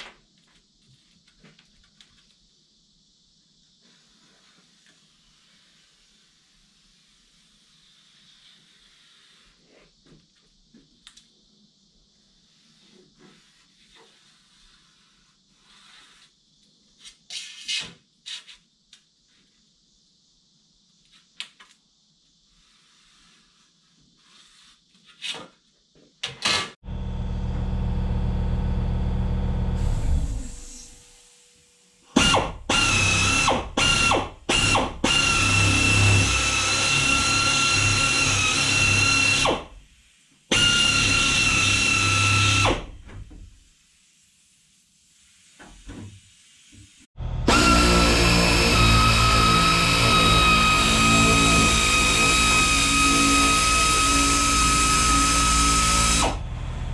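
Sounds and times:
low motor hum: 0:26.8 - 0:31.1, 0:47.2 - 0:47.9, 0:56.3 - 0:56.9
power shears cutting sheet metal: 0:32.1 - 0:39.6, 0:40.5 - 0:42.9, 0:47.2 - 0:56.9.

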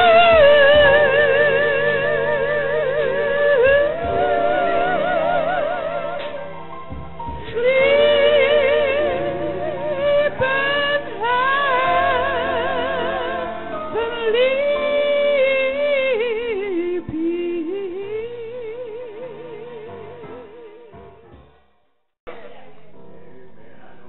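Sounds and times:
woman singing with vibrato: 0:00.0 - 0:06.6, 0:07.4 - 0:21.2
sustained organ chords: 0:00.0 - 0:17.0.

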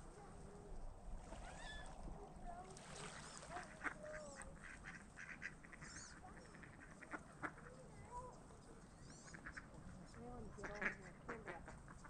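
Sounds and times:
ducks quacking: 0:03.1 - 0:07.8, 0:09.2 - 0:12.0.

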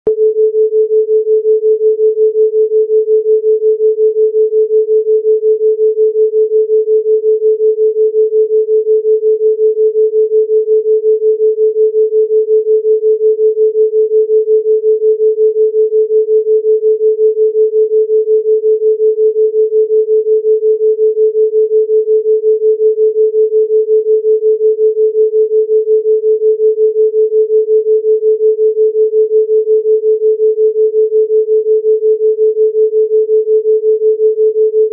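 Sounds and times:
throbbing pure sine tone: 0:00.1 - 0:34.9.

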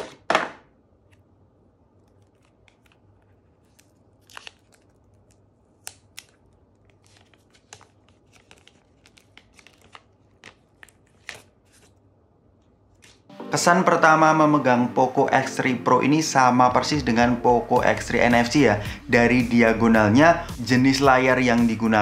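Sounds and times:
plastic film crinkling: 0:02.0 - 0:12.0.

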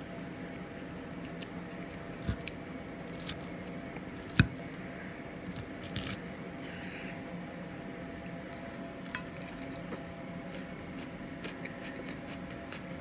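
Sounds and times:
steady low hum: 0:00.0 - 0:13.0
salad leaves squishing: 0:08.5 - 0:09.9.

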